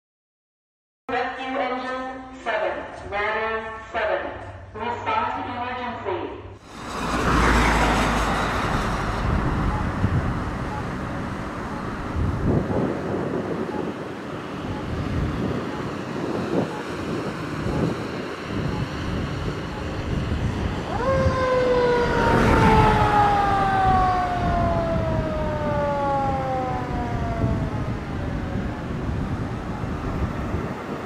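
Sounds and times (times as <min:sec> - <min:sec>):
fire truck engine running: 0:06.7 - 0:17.9, 0:18.5 - 0:30.8
mechanical siren winding down: 0:07.4 - 0:12.8, 0:19.7 - 0:20.0, 0:20.6 - 0:30.0.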